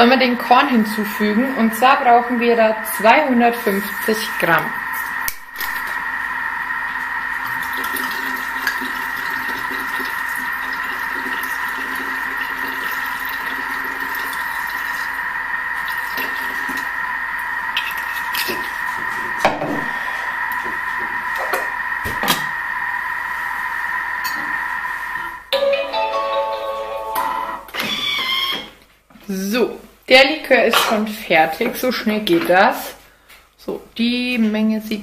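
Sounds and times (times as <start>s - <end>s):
food processor motor whining: 0.4s - 25.4s, 27.4s - 28.8s
liquid pouring into bowl: 7.0s - 21.7s.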